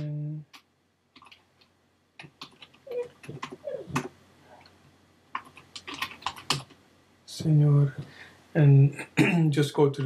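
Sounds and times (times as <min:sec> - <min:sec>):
keyboard keys clicking: 0:01.2 - 0:04.1, 0:05.3 - 0:06.8.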